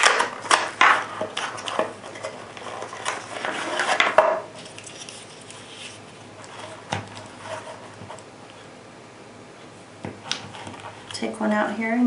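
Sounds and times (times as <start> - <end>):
cardboard rustling: 0.0 - 8.7.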